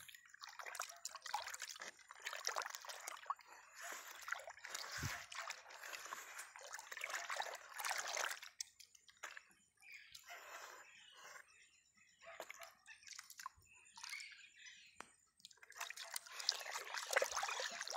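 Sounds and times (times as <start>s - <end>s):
hand swishing water in a tub: 0.0s - 9.5s, 15.5s - 17.9s
water trickling: 0.0s - 9.5s, 15.4s - 17.9s.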